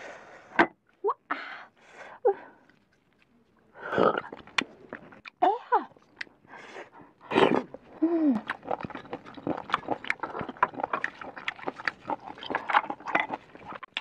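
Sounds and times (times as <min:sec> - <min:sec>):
crunchy chewing: 0:02.6 - 0:05.4, 0:07.4 - 0:14.0
wet slurp: 0:07.2 - 0:14.0.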